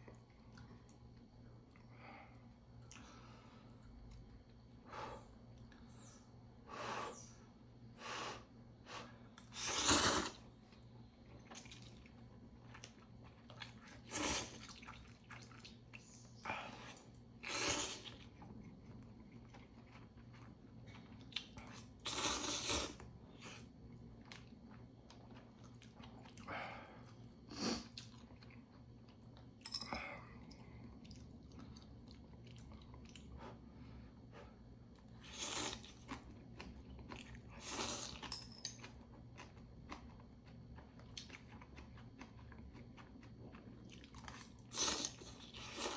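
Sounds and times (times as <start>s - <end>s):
person chewing: 9.4s - 29.2s, 30.2s - 33.6s, 35.0s - 45.9s
person slurping noodles: 9.5s - 10.4s, 14.0s - 14.8s, 17.4s - 18.2s, 22.0s - 23.0s.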